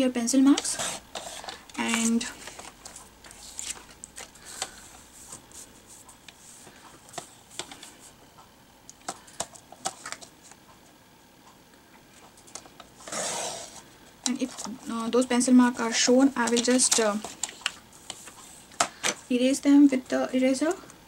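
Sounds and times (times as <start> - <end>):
paper sliding over trimmer: 13.0 - 13.8.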